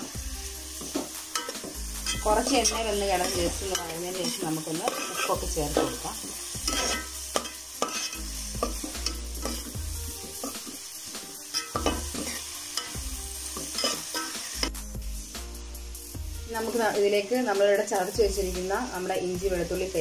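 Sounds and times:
onions sizzling in oil: 0.0 - 20.0
metal spoon scraping pot: 1.3 - 9.7.

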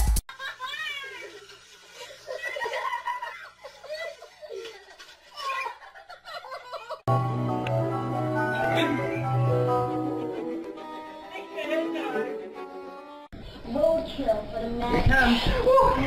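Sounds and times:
children laughing: 0.3 - 7.1, 8.5 - 12.2
music: 7.1 - 13.3.

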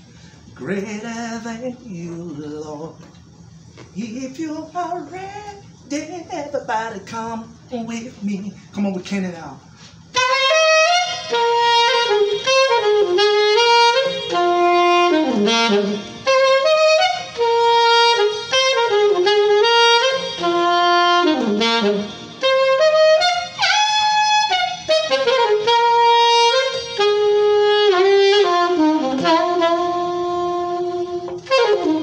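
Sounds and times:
saxophone melody: 10.0 - 32.0.

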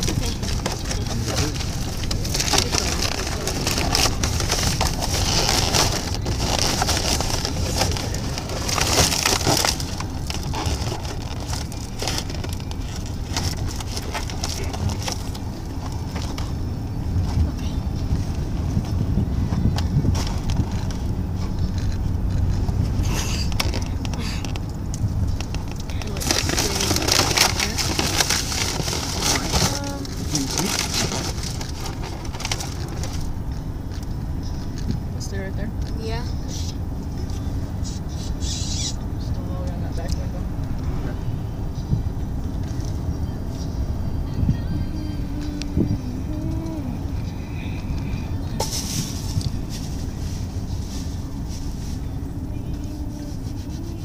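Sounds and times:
crackling at microphone: 0.0 - 36.0
car cabin rumble: 0.0 - 54.0.

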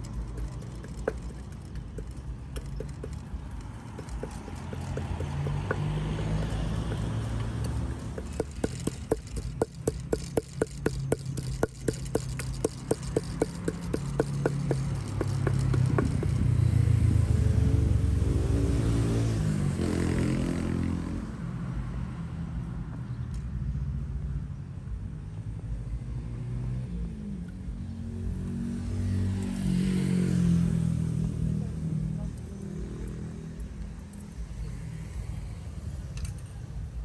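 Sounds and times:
pestle pounding in a mortar: 0.0 - 16.7
vehicle engine passing: 0.0 - 21.1
street traffic rumbling: 0.0 - 37.0.

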